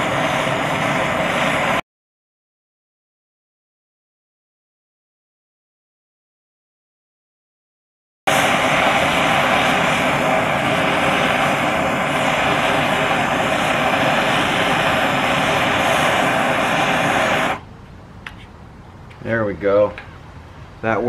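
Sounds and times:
gas torch flame hissing: 0:00.0 - 0:01.8, 0:08.3 - 0:18.6.

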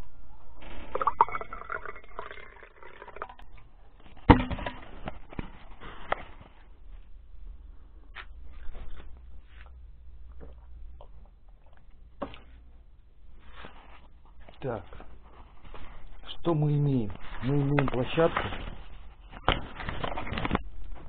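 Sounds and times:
person sipping: 0:00.6 - 0:03.6
tea pouring into a glass mug: 0:00.9 - 0:03.5.

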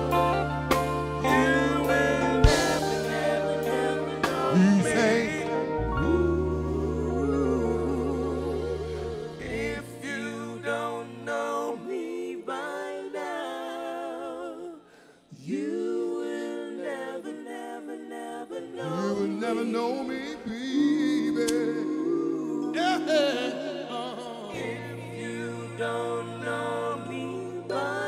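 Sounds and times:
bass guitar: 0:00.0 - 0:09.9
women singing together: 0:00.0 - 0:28.0.

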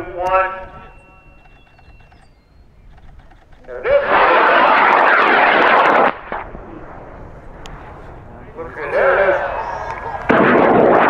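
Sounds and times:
rocket motor roaring: 0:00.0 - 0:11.0.

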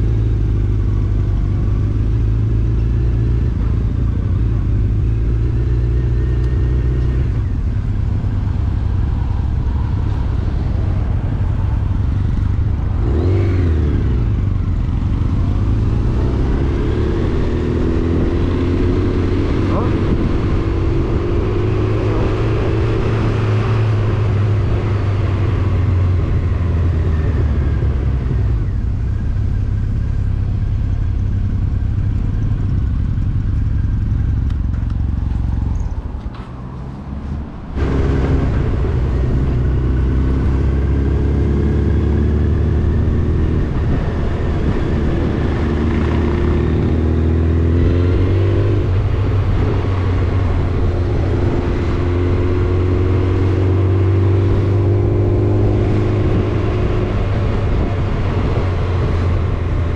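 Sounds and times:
motorcycle engine running: 0:00.0 - 0:36.3, 0:37.2 - 0:59.9
wind rushing noise: 0:09.2 - 0:28.6, 0:37.4 - 0:59.9.

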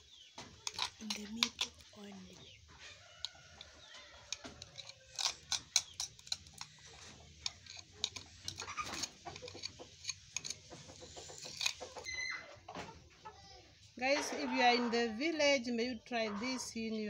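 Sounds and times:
metal spoon scraping plastic bowl: 0:00.6 - 0:02.3, 0:03.1 - 0:12.1.

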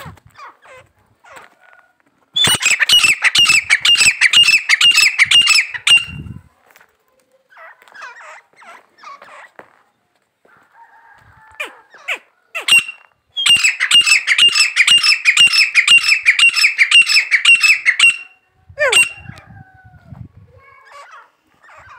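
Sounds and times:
francolin calling: 0:02.4 - 0:06.3, 0:12.6 - 0:19.3.

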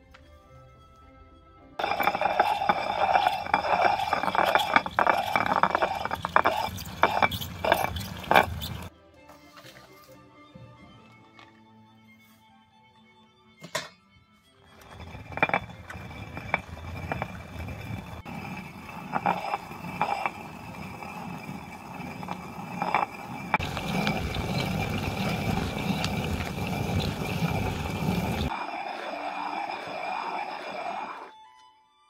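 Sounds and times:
millstone grinding: 0:01.8 - 0:08.9, 0:14.7 - 0:31.3.

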